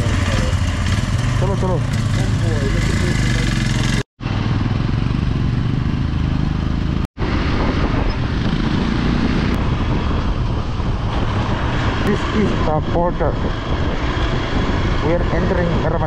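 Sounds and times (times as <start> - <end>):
motorcycle engine accelerating: 0.0 - 16.0
wind noise on microphone: 4.2 - 16.0.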